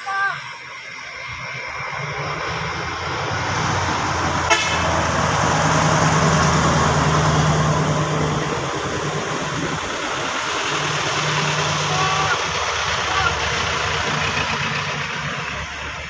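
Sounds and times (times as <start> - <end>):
heavy truck passing: 0.3 - 16.0.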